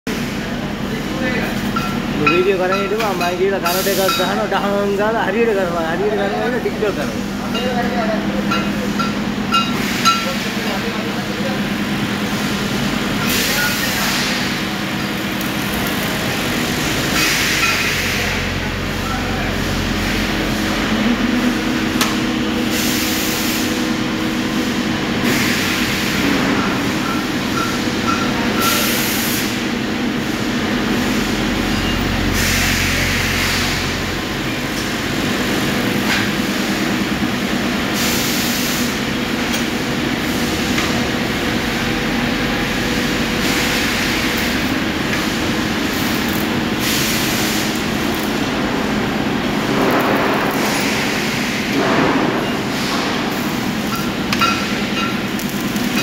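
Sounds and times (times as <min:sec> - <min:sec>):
workshop machinery humming: 0:00.0 - 0:56.0
hiss: 0:22.7 - 0:23.8, 0:32.3 - 0:34.0, 0:37.8 - 0:39.0, 0:46.8 - 0:47.9.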